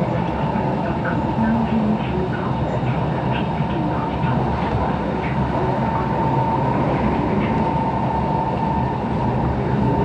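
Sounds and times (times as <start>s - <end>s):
train wheels rumbling on track: 0.0s - 10.0s
high whine: 5.0s - 10.0s.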